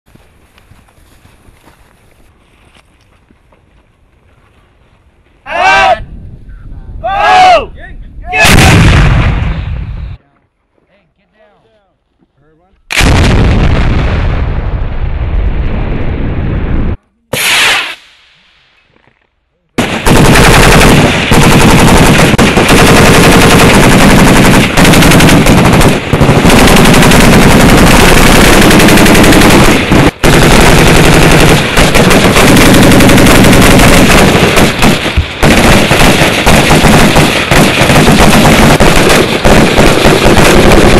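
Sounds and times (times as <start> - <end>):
blast: 8.4 - 10.0, 12.9 - 18.9, 19.8 - 40.9
rapid rifle gunfire: 19.8 - 40.9.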